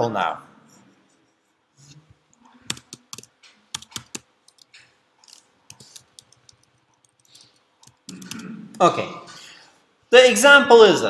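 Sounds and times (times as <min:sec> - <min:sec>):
computer keyboard typing: 0:02.6 - 0:08.6.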